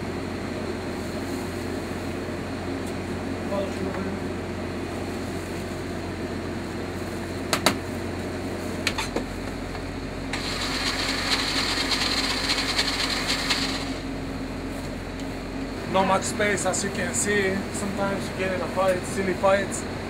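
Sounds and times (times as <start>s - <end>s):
low background hum: 0.0s - 20.0s
countertop blender running: 10.3s - 14.1s.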